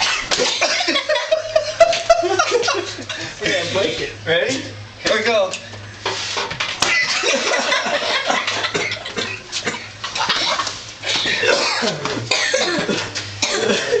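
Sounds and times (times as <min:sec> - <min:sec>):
people laughing hard: 0:00.0 - 0:03.4, 0:06.8 - 0:10.8.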